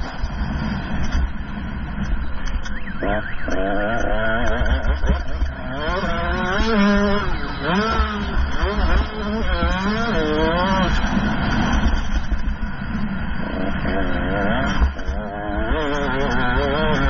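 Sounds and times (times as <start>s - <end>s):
low rumble: 0.0s - 15.8s
dirt bike engine revving: 2.7s - 17.0s.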